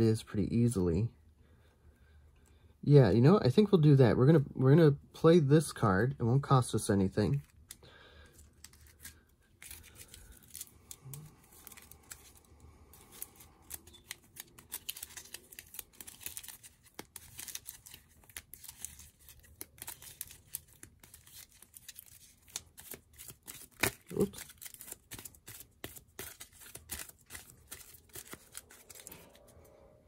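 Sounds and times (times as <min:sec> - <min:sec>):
cards scraping and clicking: 0:07.3 - 0:29.6.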